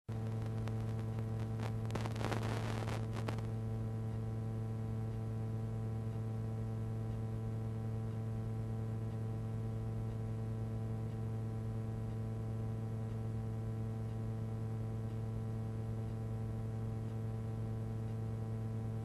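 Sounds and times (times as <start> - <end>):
electrical buzz: 0.1 - 3.6.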